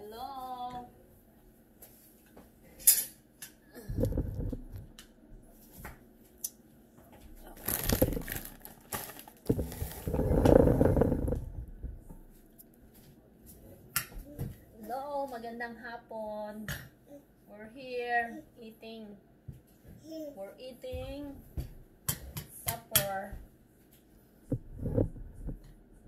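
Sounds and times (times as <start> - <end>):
rustling and shuffling: 0.2 - 2.8, 3.8 - 15.4, 23.4 - 26.0.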